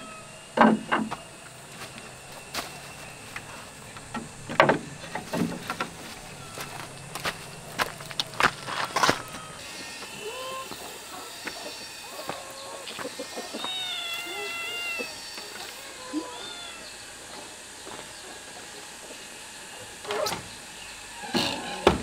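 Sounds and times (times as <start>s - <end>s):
cat meowing: 13.4s - 15.2s, 15.9s - 17.0s.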